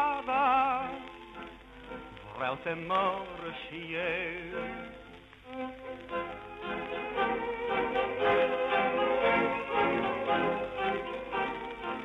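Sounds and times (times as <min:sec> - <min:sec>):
tango orchestra with violins: 0:00.1 - 0:12.0.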